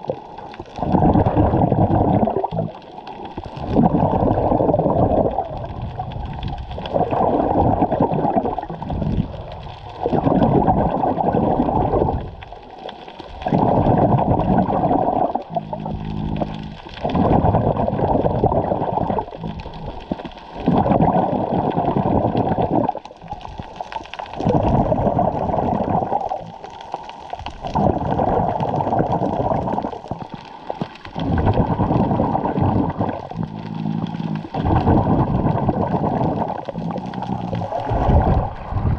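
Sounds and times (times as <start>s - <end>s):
muffled underwater water noise: 0.0s - 38.9s
short low hum: 15.5s - 16.8s.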